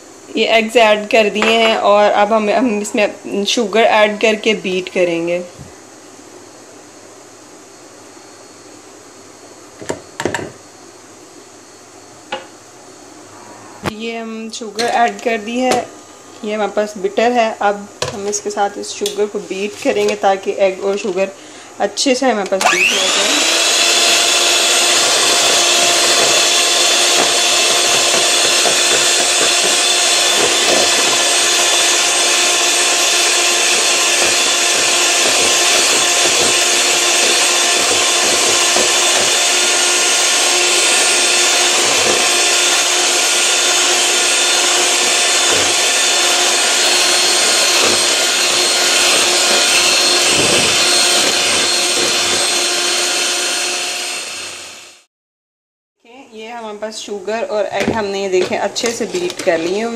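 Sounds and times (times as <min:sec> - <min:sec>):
electric hand mixer whining: 0:22.6 - 0:55.1
beaters whisking in a bowl: 0:22.9 - 0:54.5, 0:58.0 - 0:59.9.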